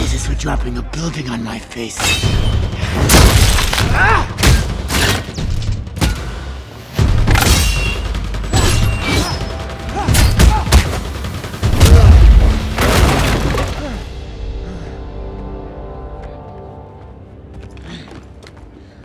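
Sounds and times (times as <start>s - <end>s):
orchestral music: 13.6s - 19.0s.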